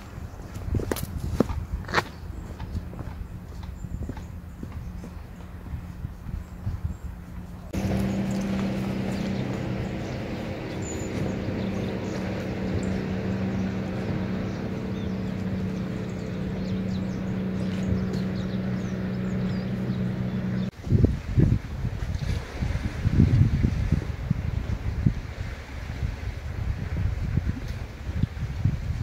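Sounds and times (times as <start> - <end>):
engine running steadily: 2.4 - 21.3.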